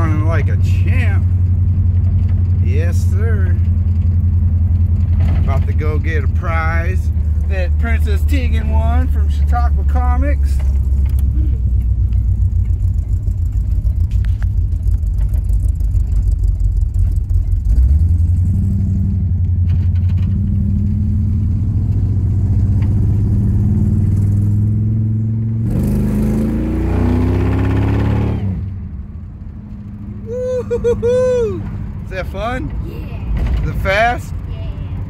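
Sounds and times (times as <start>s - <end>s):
car engine accelerating: 0.0s - 35.0s.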